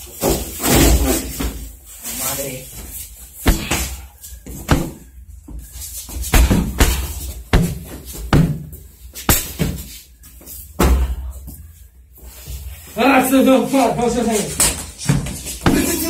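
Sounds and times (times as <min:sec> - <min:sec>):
thuds of blows on a body: 0:03.4 - 0:05.1, 0:06.1 - 0:09.9, 0:10.8 - 0:11.2, 0:15.1 - 0:16.0.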